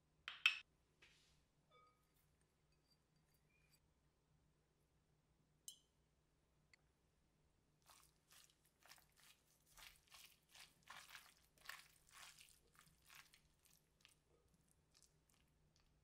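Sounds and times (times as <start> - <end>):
wet crunching of cabbage leaves: 7.8 - 16.0.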